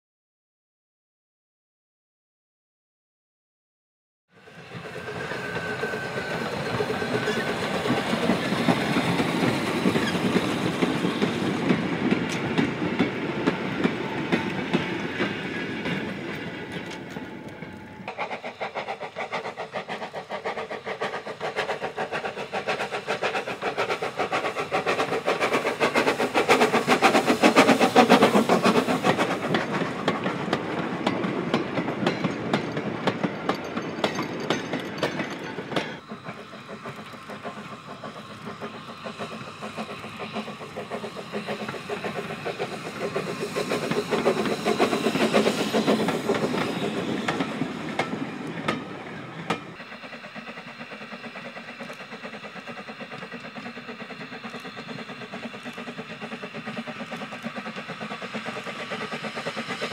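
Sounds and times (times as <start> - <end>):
steam engine exhaust beats: 4.4 - 59.9
wagons clacking over rail joints: 20.6 - 49.8.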